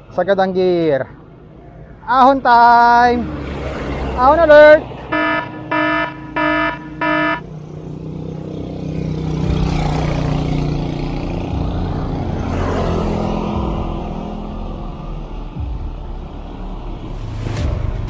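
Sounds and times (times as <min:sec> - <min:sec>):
vehicle engine passing: 0:03.0 - 0:17.7
short beeps: 0:05.1 - 0:07.4.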